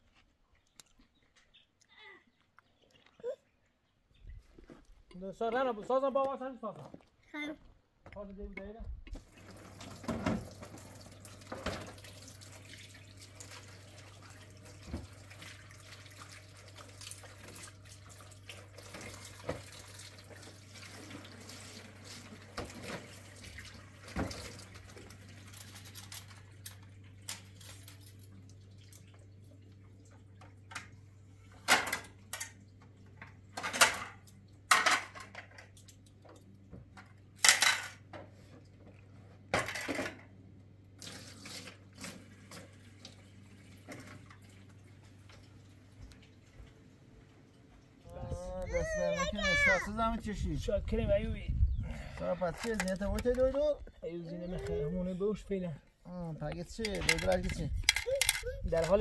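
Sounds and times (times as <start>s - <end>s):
water being handled: 9.2s - 30.6s.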